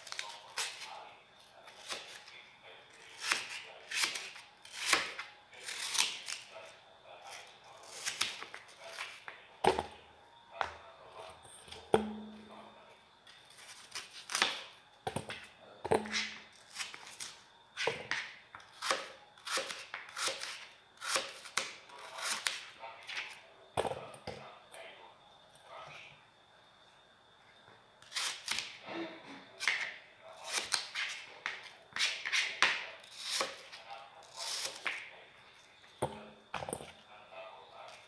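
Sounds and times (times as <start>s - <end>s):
knife slicing apple: 0.0s - 1.0s, 1.6s - 2.3s, 3.0s - 6.5s, 7.2s - 10.0s, 13.5s - 23.4s, 28.0s - 28.8s, 29.6s - 35.0s.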